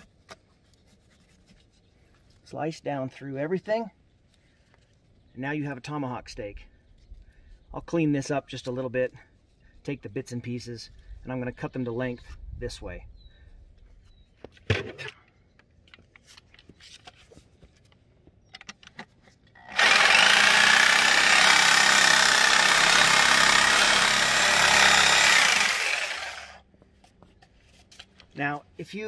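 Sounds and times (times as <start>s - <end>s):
reciprocating saw cutting bone: 19.7s - 26.6s.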